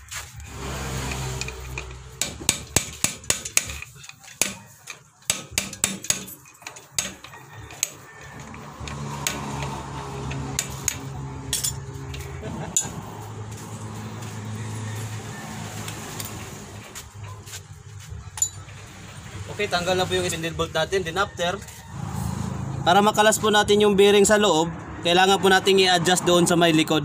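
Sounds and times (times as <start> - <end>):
hammer tapping metal: 1.1 - 13.0, 18.3 - 18.9.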